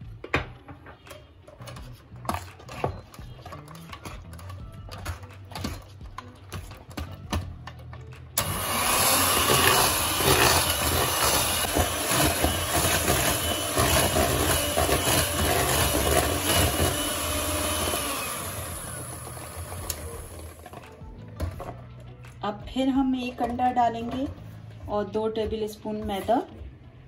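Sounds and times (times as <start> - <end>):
electric hand mixer whirring: 8.4 - 20.8.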